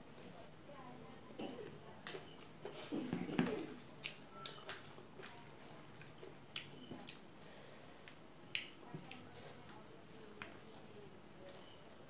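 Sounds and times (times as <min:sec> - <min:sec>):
wet mouth clicks and smacks chewing: 0:04.0 - 0:07.2, 0:08.5 - 0:09.2.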